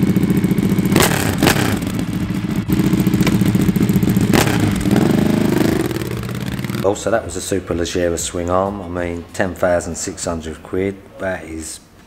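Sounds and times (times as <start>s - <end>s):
exhaust cracks: 0.0s - 8.7s
motorcycle engine idling and revving: 0.0s - 8.7s.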